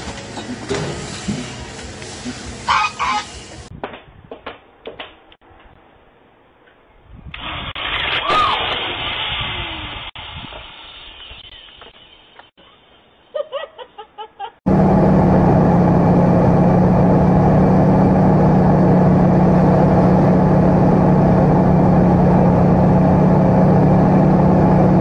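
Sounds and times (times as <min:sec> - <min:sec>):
propeller plane engine drone: 0:14.7 - 0:25.0.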